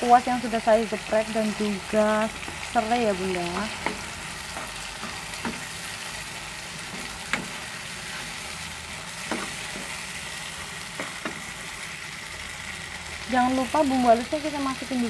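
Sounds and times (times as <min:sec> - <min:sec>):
spice paste sizzling in oil: 0:00.0 - 0:15.0
metal spatula stirring: 0:03.6 - 0:05.9.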